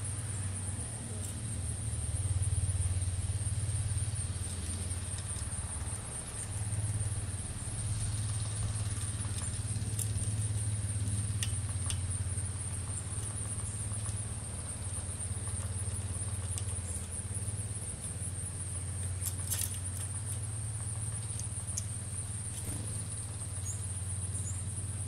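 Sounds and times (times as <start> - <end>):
low engine hum: 0.0 - 25.0
sharp ticks: 4.4 - 24.0.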